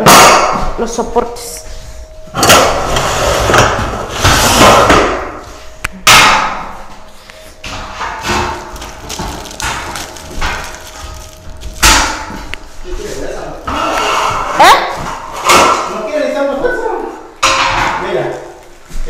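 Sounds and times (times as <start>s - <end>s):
metal clattering and scraping: 7.6s - 16.2s.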